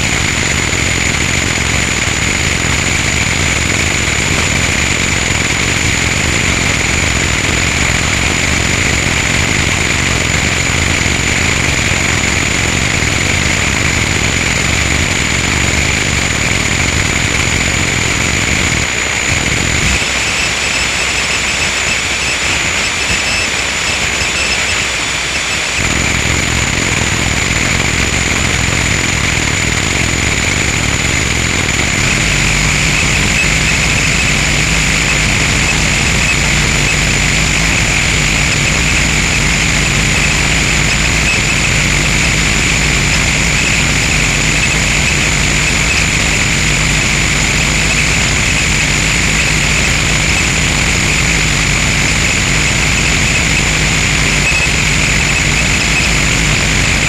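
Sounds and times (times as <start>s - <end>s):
harsh distorted noise music: 0.0s - 57.0s
steady high tones: 19.8s - 27.8s, 30.1s - 57.0s.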